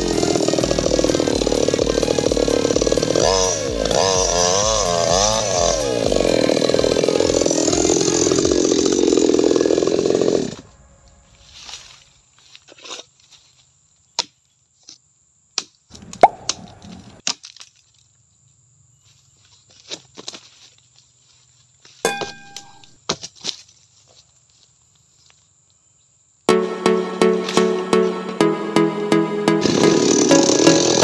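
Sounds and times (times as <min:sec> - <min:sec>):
chainsaw cutting wood: 0:00.0 - 0:10.6, 0:29.6 - 0:31.0.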